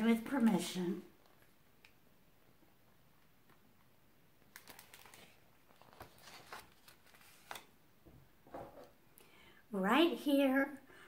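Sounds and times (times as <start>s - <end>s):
picture book pages rustling: 4.4s - 7.8s.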